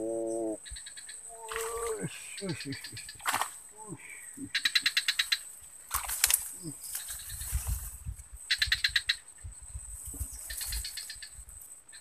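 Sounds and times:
rapid chattering animal call: 0:00.0 - 0:05.5
sharp clicks: 0:05.9 - 0:06.5.

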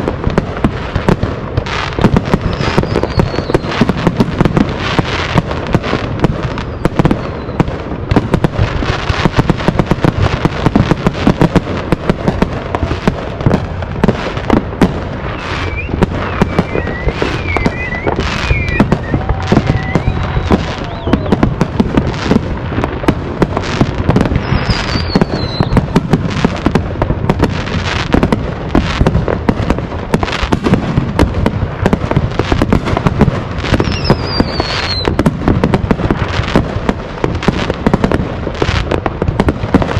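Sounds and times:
fireworks bangs and crackles: 0:00.0 - 0:39.9
firework whistles: 0:01.0 - 0:11.5, 0:14.1 - 0:22.4, 0:23.6 - 0:26.7, 0:33.6 - 0:35.3.

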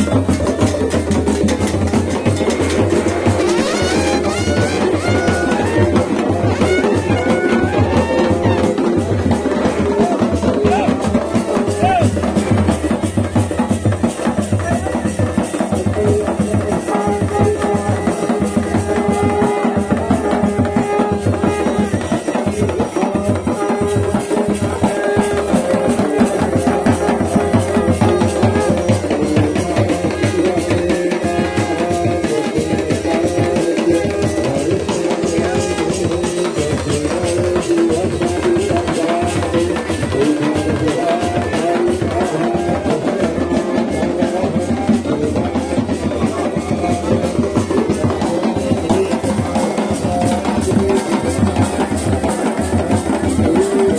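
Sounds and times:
fast drum beat: 0:00.0 - 0:53.9.

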